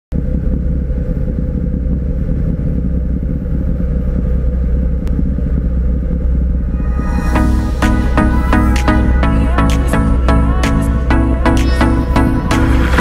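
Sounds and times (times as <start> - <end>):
boat engine rumbling: 0.1 - 13.0.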